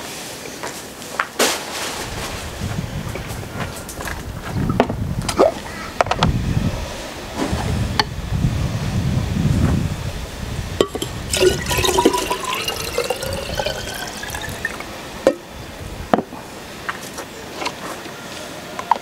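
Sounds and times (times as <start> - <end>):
glass jars knocking: 10.8 - 14.9
liquid gurgling into glass jar: 10.8 - 15.0.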